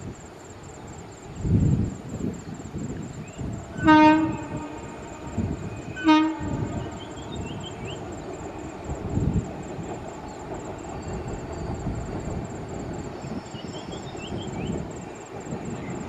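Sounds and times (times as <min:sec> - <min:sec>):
wind buffeting microphone: 0:00.0 - 0:16.0
train horn blasts: 0:03.8 - 0:07.5.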